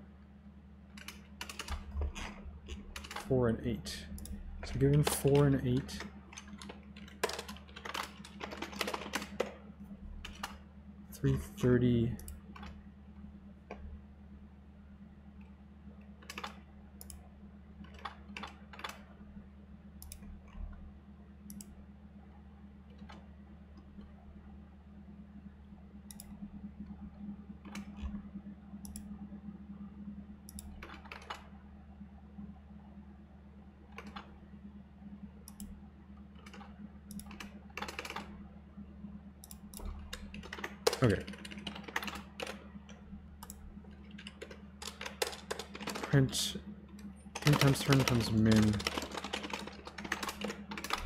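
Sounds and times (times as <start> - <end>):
steady low hum: 0.0 - 51.0
computer keyboard typing: 1.0 - 3.4, 4.2 - 9.6, 10.2 - 10.6, 16.2 - 17.2, 17.8 - 19.0, 30.5 - 31.5, 33.9 - 34.3, 36.4 - 38.4, 39.4 - 51.0.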